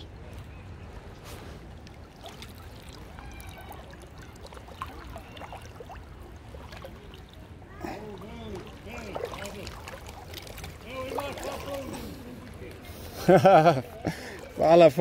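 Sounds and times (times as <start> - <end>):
river water trickling and splashing: 0.0 - 15.0.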